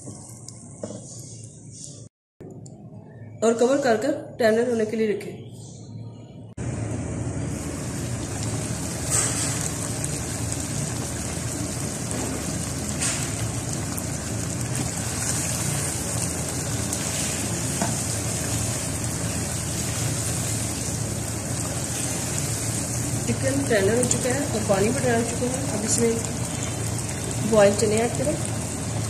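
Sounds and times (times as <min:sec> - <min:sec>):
curry sizzling in oil: 0:07.4 - 0:29.0.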